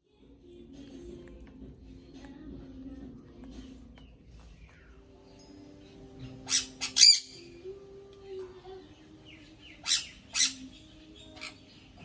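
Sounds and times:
parrot sharp calls: 6.4s - 7.5s, 9.8s - 10.6s.

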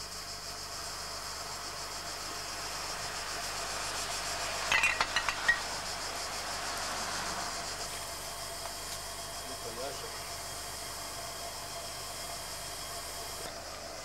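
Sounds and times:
glass bottles clinking: 4.7s - 5.7s.

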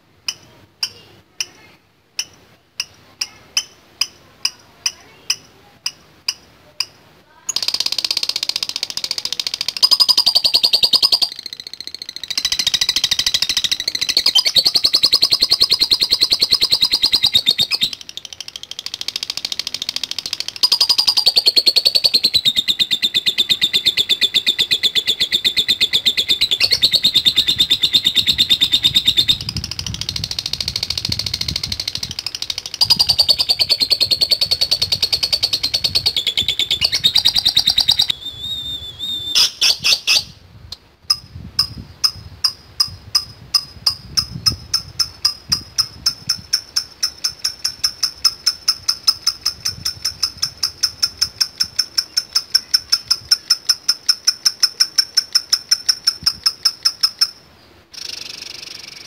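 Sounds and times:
bird quick high ticks: 2.2s - 22.8s
bird shrill chirps: 7.5s - 40.4s.

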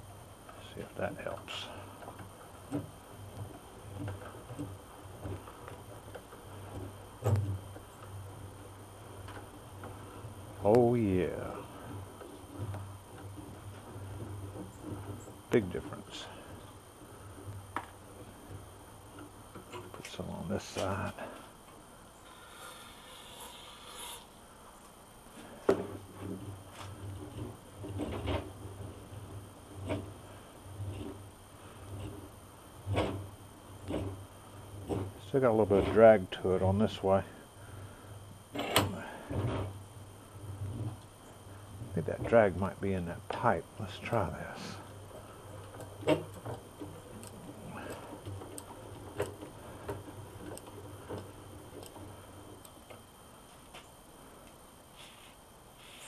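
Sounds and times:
vise jaw rumbling and clattering: 25.5s - 37.0s, 37.7s - 53.2s.

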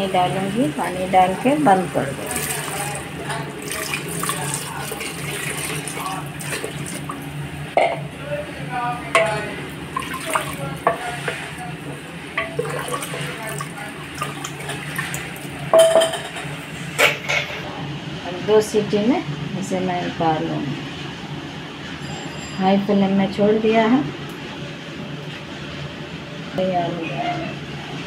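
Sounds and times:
water sloshing from stirring: 0.8s - 7.4s, 9.2s - 16.7s.

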